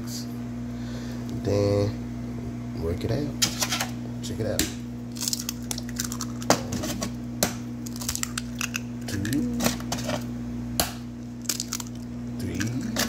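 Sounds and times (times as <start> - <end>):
steady low hum: 0.0 - 13.0
eggs cracking on bowl rim: 5.1 - 6.6, 7.8 - 9.9, 11.4 - 13.0.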